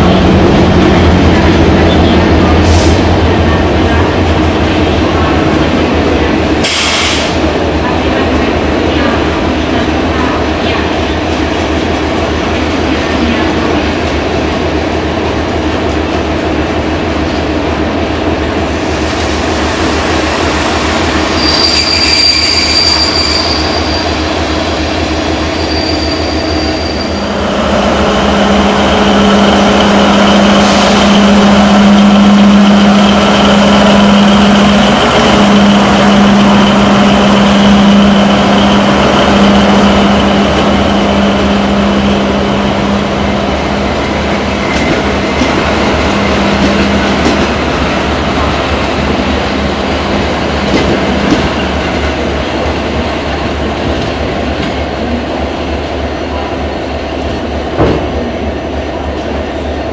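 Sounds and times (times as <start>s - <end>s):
locomotive engine hum and whine: 0.0s - 18.6s, 23.7s - 59.9s
train coaches rolling: 0.0s - 59.9s
high-pitched wheel squeal: 21.3s - 24.2s, 25.5s - 27.3s.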